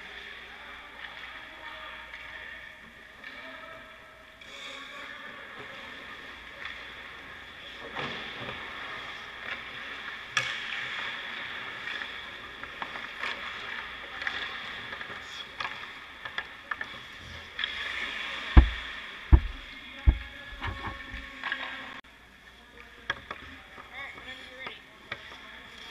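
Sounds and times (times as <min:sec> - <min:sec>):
heavy thuds: 0:18.6 - 0:21.3.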